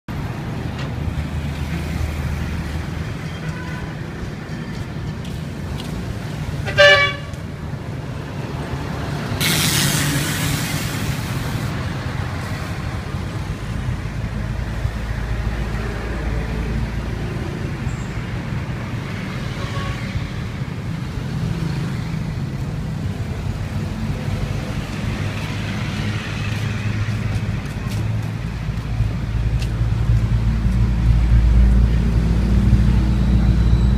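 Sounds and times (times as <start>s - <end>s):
vehicle engines running: 0.1s - 19.6s, 20.2s - 33.9s
car horn toot: 6.6s - 7.4s
rush of hiss: 9.4s - 11.8s.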